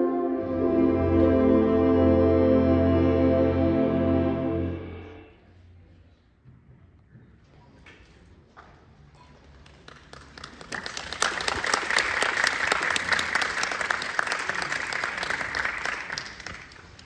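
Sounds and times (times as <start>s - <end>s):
audience applauding: 9.7s - 17.0s.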